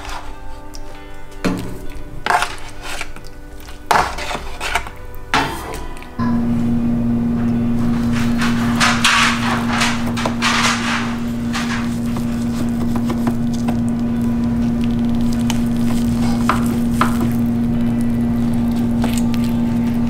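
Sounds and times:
loud steady low hum: 5.1 - 20.0
knife carving meat: 14.8 - 17.4.

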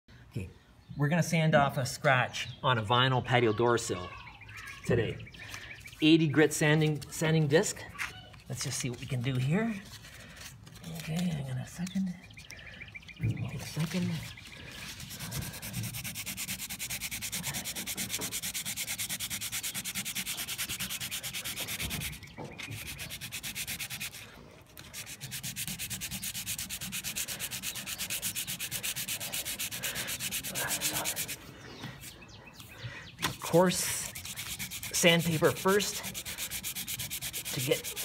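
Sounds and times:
sandpaper rasping on plastic sill: 13.6 - 32.2, 33.2 - 38.0.

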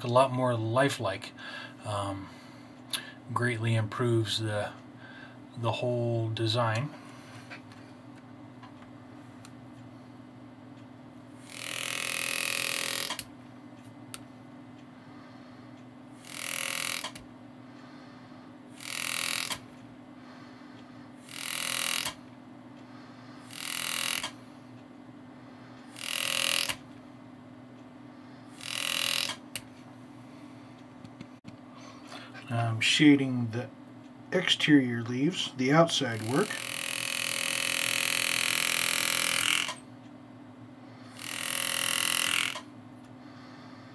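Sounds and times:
engraving tool cutting steel: 11.4 - 13.3, 16.2 - 17.2, 18.8 - 19.6, 21.3 - 22.2, 23.5 - 24.4, 25.9 - 26.8, 28.6 - 29.4, 36.0 - 39.8, 41.2 - 42.6.

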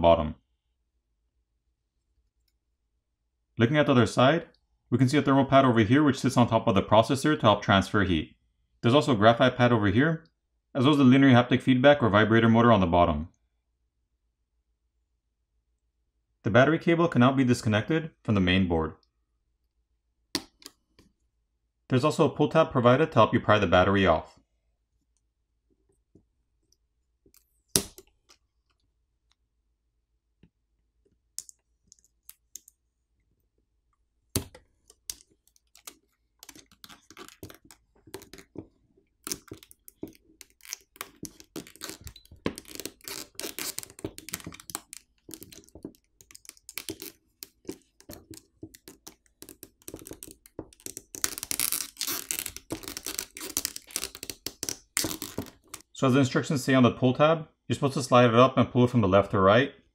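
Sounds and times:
scratchy clicking and crackling: 34.3 - 55.9.

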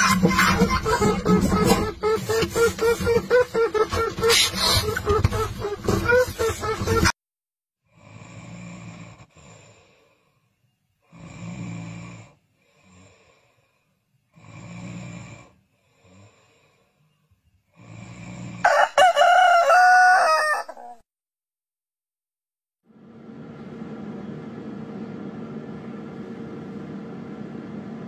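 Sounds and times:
person snoring: 7.9 - 10.4, 11.0 - 17.0, 17.6 - 18.8
rooster crowing: 18.6 - 21.0.

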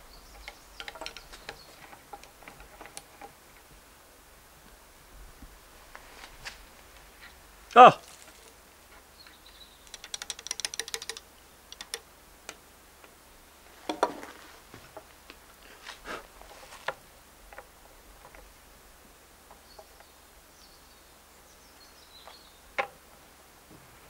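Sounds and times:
small metallic clicks rattling: 0.3 - 3.4, 9.9 - 12.6.

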